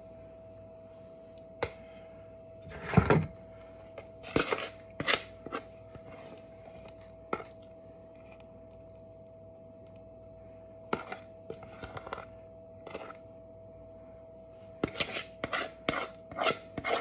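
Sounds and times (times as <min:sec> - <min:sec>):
fork scraping a mixing bowl: 0:04.0 - 0:07.6, 0:10.9 - 0:13.2, 0:14.8 - 0:17.0
batter spooned into metal tin: 0:04.0 - 0:09.0, 0:10.8 - 0:13.3, 0:14.8 - 0:17.0.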